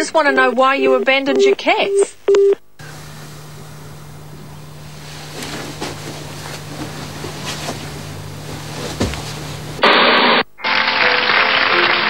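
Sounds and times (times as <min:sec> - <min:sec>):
noisy hiss: 0:00.0 - 0:12.0
low hum: 0:02.3 - 0:09.8
pillow rustles and knocks: 0:04.8 - 0:09.8.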